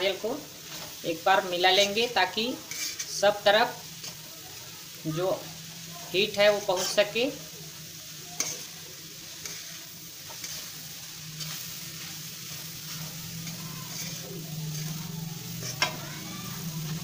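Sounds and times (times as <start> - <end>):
soft sizzle: 0.0 - 17.0
spoon scraping a steel pan: 2.6 - 3.2, 6.7 - 7.2, 9.4 - 10.7, 11.4 - 16.0.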